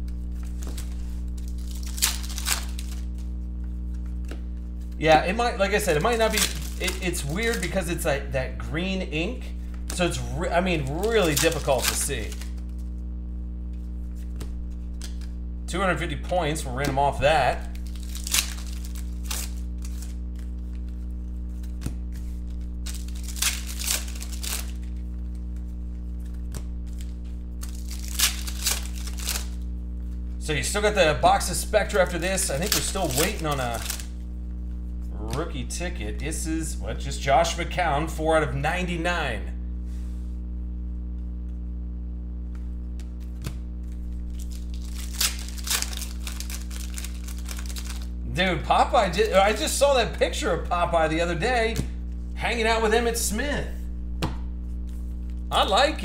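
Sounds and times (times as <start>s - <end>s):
foil wrappers crinkling and tearing: 0.0s - 8.0s, 9.6s - 13.0s, 17.6s - 30.2s, 31.3s - 34.2s, 43.0s - 48.2s, 48.9s - 49.8s
steady low hum: 0.0s - 56.0s
cards clicking: 5.7s - 7.8s, 10.7s - 12.9s, 13.7s - 15.4s, 17.7s - 25.4s, 26.2s - 29.6s, 32.0s - 34.1s.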